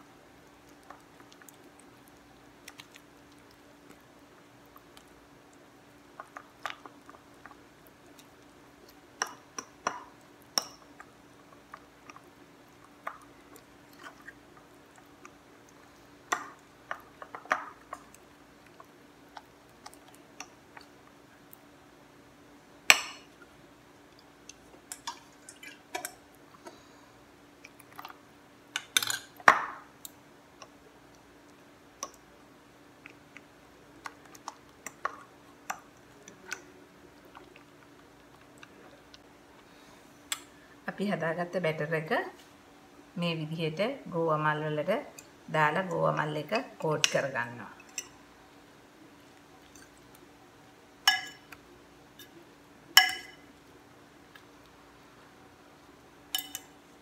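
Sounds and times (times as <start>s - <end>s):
soft wet batter mixing: 0.0s - 57.0s
spoon clinking and scraping bowl: 51.1s - 51.5s, 53.0s - 53.4s, 56.3s - 56.7s.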